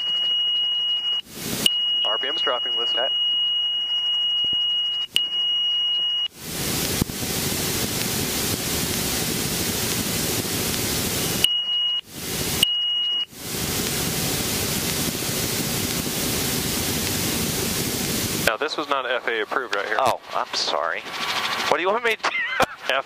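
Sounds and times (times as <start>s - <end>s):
warning horn high beep: 0.0s - 6.3s
loud rushing hiss: 1.3s - 3.1s, 6.4s - 11.5s, 12.1s - 12.6s, 13.3s - 23.0s.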